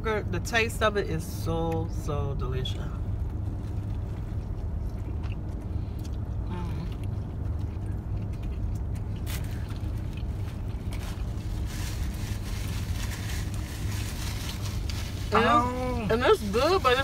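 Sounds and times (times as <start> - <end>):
people chewing: 3.5 - 15.8.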